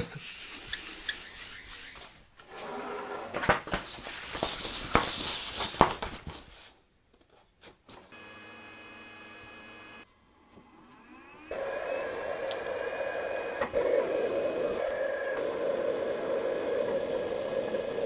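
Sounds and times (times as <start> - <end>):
sandpaper rubbing: 0.0 - 2.1
electric hum with faint whine: 8.1 - 18.0.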